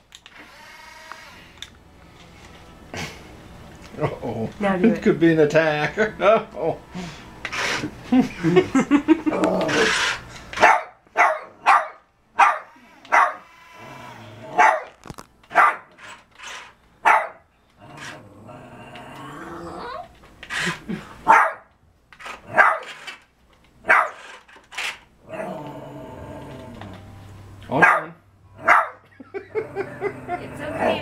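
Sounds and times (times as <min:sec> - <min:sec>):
small dog barking: 0:10.6 - 0:13.4, 0:14.6 - 0:14.9, 0:15.5 - 0:15.9, 0:17.0 - 0:17.4, 0:21.3 - 0:21.7, 0:22.5 - 0:22.9, 0:23.9 - 0:24.2, 0:27.8 - 0:29.0.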